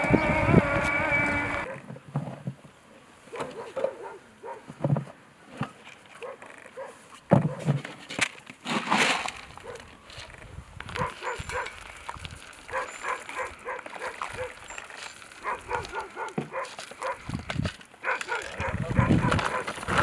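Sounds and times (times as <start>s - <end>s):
dogs whimpering and yipping: 3.3s - 4.6s, 11.0s - 11.8s, 12.7s - 14.8s, 15.4s - 17.2s, 18.0s - 19.7s
rustle: 4.7s - 20.0s.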